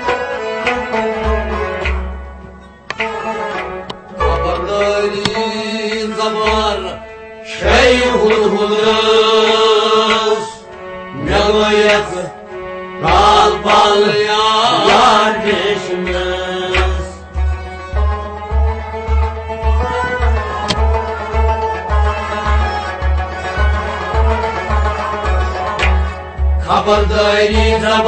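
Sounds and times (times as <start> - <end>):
person singing devotional song: 4.2 - 12.4, 13.0 - 17.2, 26.6 - 28.0
low drum beat: 16.1 - 22.1.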